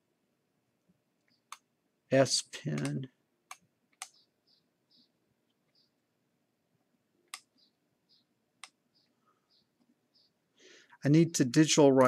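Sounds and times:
sharp computer clicks: 0:02.7 - 0:04.3, 0:07.3 - 0:07.7, 0:08.6 - 0:08.8.

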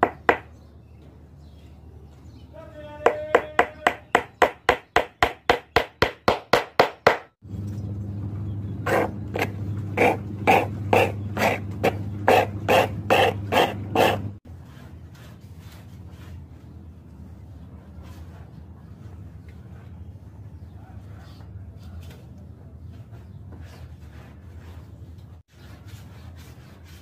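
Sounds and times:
hammer tapping a nail into wood: 0:03.0 - 0:07.3
low steady hum: 0:07.4 - 0:14.4
file rasping on wood: 0:08.9 - 0:15.8, 0:25.5 - 0:27.0.

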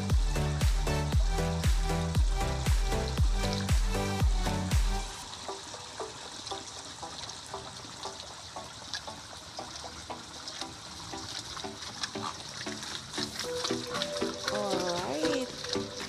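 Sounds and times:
water trickling: 0:00.0 - 0:16.0.

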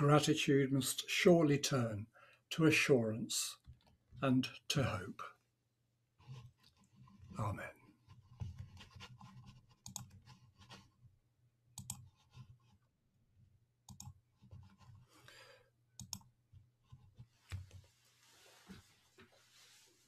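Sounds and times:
computer mouse clicks: 0:08.4 - 0:10.8, 0:11.8 - 0:12.5, 0:13.9 - 0:15.0, 0:16.0 - 0:16.3.

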